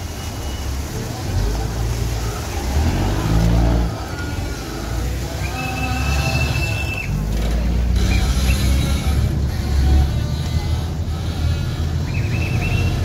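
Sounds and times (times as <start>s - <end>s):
boat engine rumbling: 0.0s - 13.0s
water rushing past hull: 0.0s - 13.0s.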